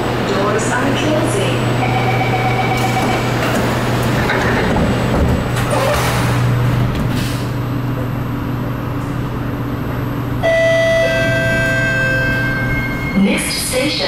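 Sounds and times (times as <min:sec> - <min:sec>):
train equipment humming: 0:00.0 - 0:14.0.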